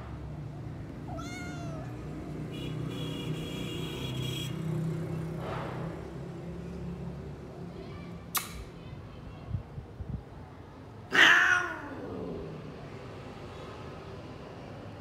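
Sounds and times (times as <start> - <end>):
cat meowing: 1.0 - 2.0, 11.1 - 12.4.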